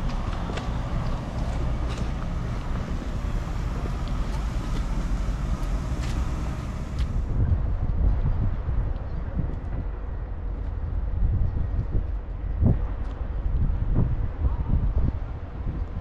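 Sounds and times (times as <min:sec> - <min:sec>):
vehicle rumble: 0:00.0 - 0:16.0
wind noise on microphone: 0:00.0 - 0:16.0
high hiss: 0:01.6 - 0:07.3.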